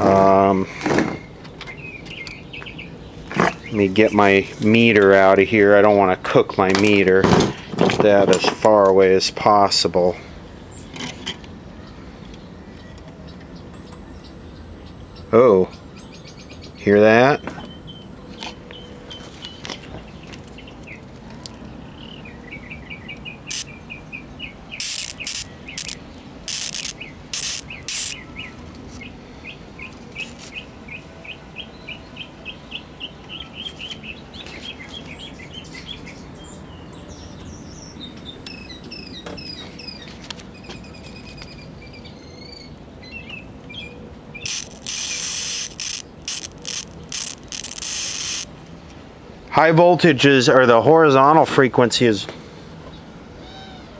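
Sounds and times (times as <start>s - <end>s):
birds chirping: 11.8s - 30.6s, 31.2s - 51.4s
high-pitched television whine: 13.8s - 28.6s, 41.0s - 53.9s.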